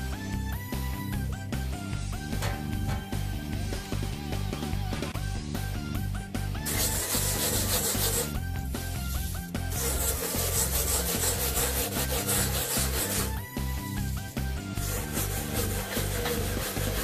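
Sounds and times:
background music: 0.0 - 17.0
scrubber pad rasping on glass: 6.7 - 8.4, 9.7 - 13.4, 14.8 - 17.0.

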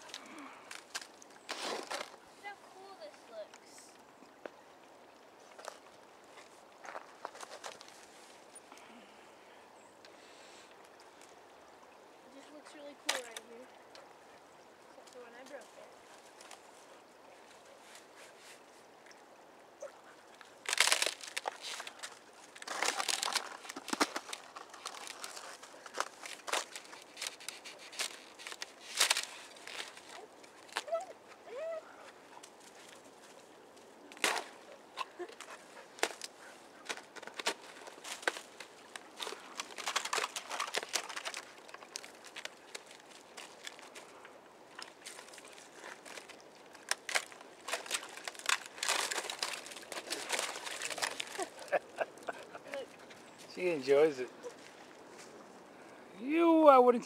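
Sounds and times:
boots breaking thin ice: 0.0 - 2.2, 20.6 - 31.0, 34.1 - 34.6, 35.2 - 44.1, 44.8 - 52.5.

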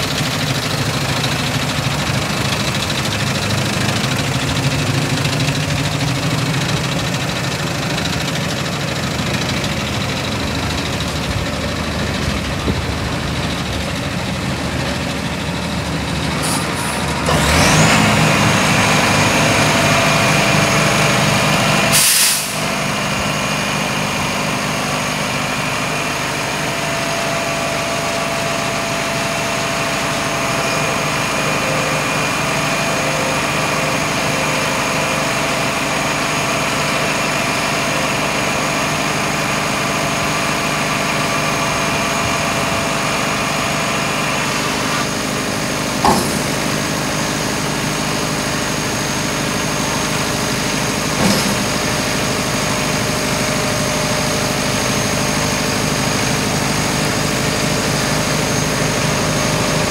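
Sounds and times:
diesel engine idling: 0.0 - 59.9
hydraulic tipping body moving: 46.0 - 46.9.

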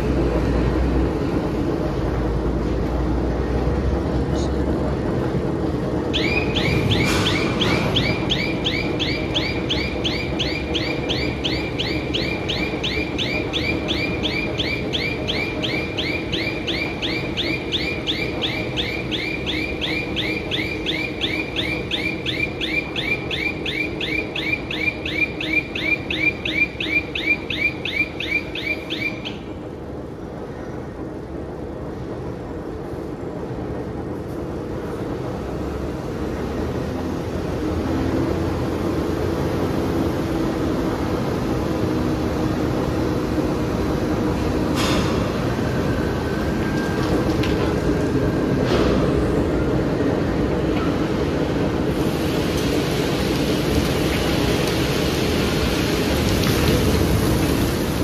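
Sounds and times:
heavy machinery hum: 0.0 - 58.0
truck reversing alarm chirping: 6.1 - 29.8.

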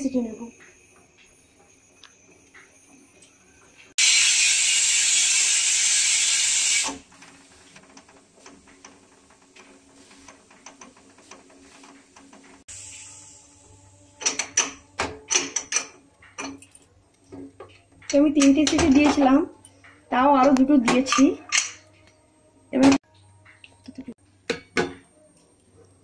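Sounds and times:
pressure cooker whistle hiss: 4.0 - 7.0, 12.7 - 14.4.

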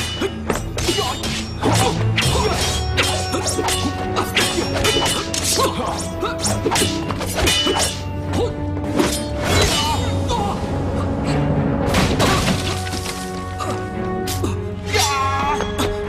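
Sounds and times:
whacks and strikes: 0.0 - 8.1
dramatic background music: 0.0 - 16.0.

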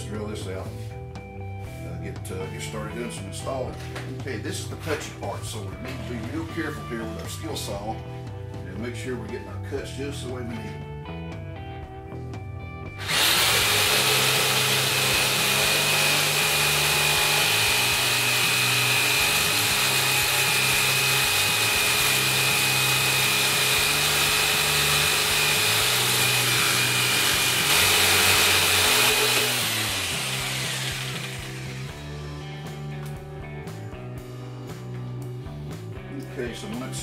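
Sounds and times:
electric jigsaw cutting wood: 13.0 - 32.1.

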